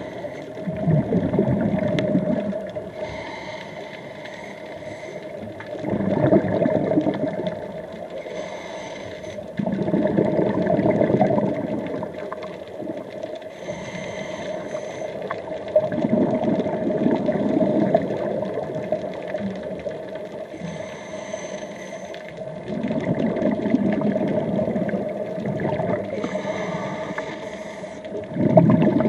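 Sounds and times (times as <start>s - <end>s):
exhaled bubbles rumbling: 0.0s - 29.0s
hissing regulator inhalations: 2.9s - 5.4s, 8.2s - 9.5s, 13.5s - 15.3s, 20.5s - 22.3s, 26.2s - 28.2s.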